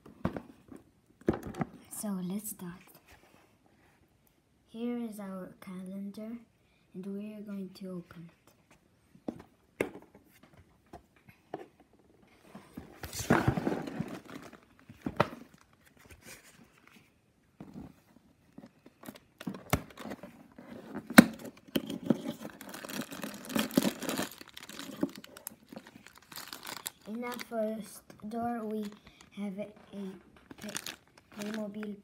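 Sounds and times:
cardboard rustling and crinkling: 0:12.4 - 0:32.0
cardboard tearing: 0:30.6 - 0:31.7.

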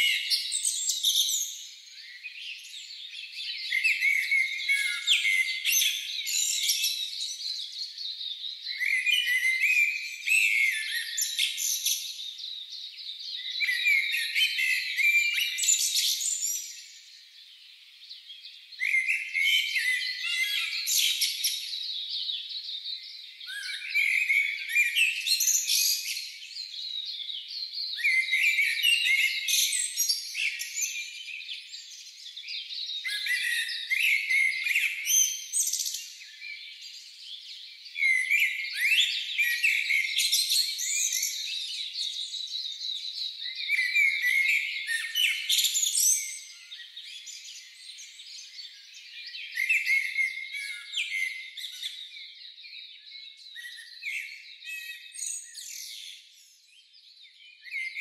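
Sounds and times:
songbird singing: 0:00.0 - 0:58.0.

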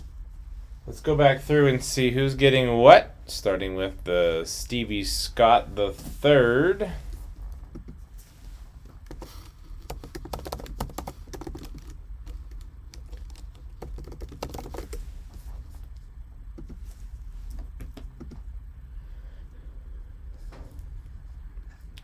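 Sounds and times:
typing on keyboard: 0:09.0 - 0:15.0, 0:17.8 - 0:18.4.

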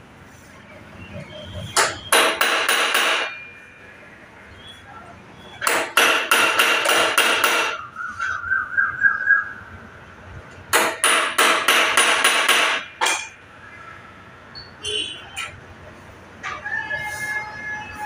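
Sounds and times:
hammer striking metal: 0:01.7 - 0:03.4, 0:05.6 - 0:07.8, 0:10.7 - 0:13.4.

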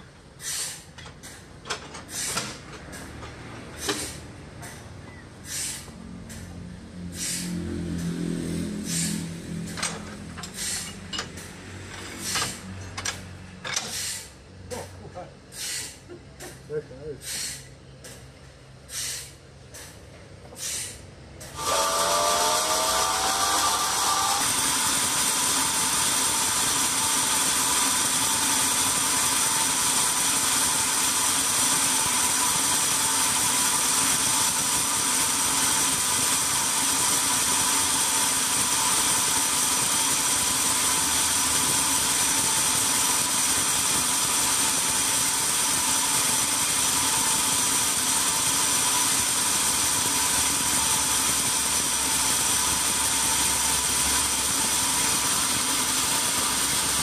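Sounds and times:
band sawmill running: 0:05.5 - 0:14.2, 0:21.4 - 0:57.0.

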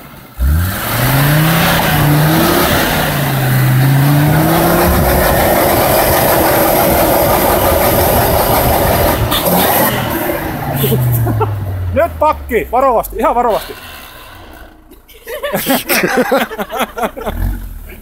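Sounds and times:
engine revving hard: 0:00.3 - 0:12.5, 0:13.4 - 0:14.9, 0:15.7 - 0:18.0
steady rushing noise: 0:01.4 - 0:12.6.

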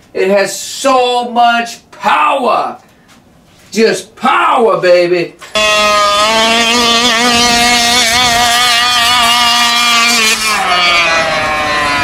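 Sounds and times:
two-stroke engine at high revs: 0:05.5 - 0:12.0.

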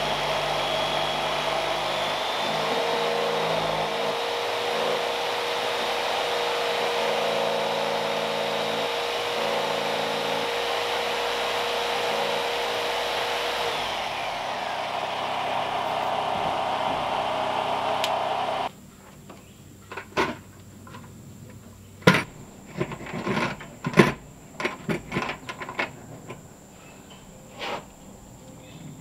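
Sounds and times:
jigsaw cutting wood: 0:00.0 - 0:18.7.

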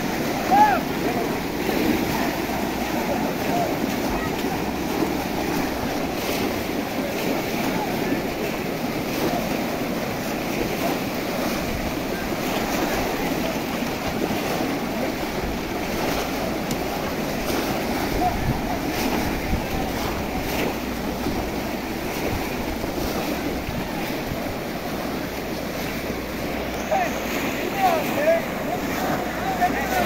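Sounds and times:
crowd splashing through water: 0:00.0 - 0:30.0
wind on microphone: 0:15.0 - 0:24.8.

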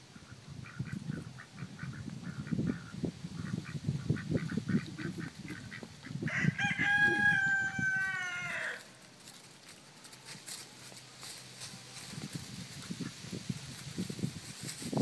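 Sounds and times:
rooster crowing: 0:06.2 - 0:08.9.

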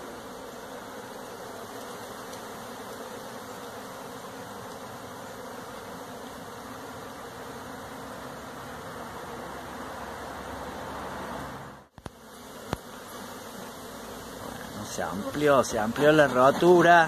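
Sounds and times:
honeybees buzzing: 0:00.0 - 0:17.0.

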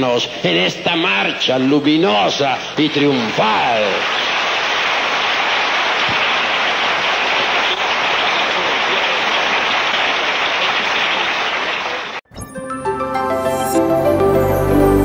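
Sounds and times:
audience applauding: 0:02.8 - 0:12.2
music: 0:12.3 - 0:15.0.

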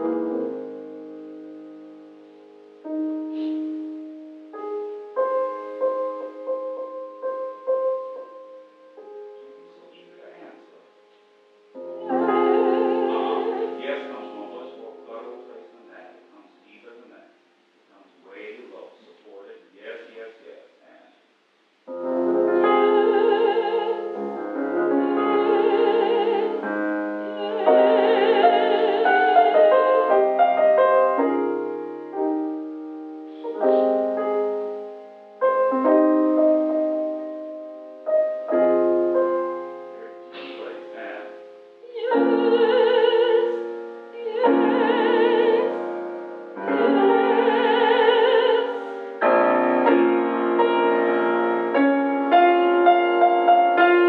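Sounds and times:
grand piano: 0:00.0 - 0:21.1, 0:21.7 - 0:54.0
woman singing with vibrato: 0:12.0 - 0:13.9, 0:22.5 - 0:30.4, 0:41.8 - 0:49.3.

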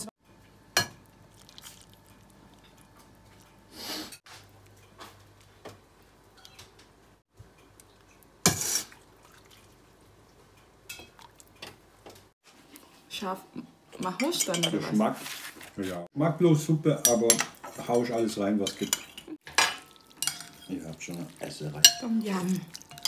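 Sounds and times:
ladle clinking on pot and bowl: 0:18.6 - 0:21.0, 0:21.8 - 0:23.0.

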